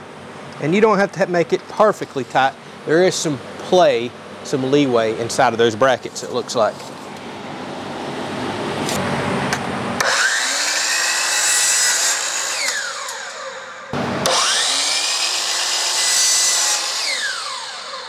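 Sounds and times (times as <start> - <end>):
miter saw motor whining: 10.0 - 18.0
saw cutting through railing: 10.0 - 18.0.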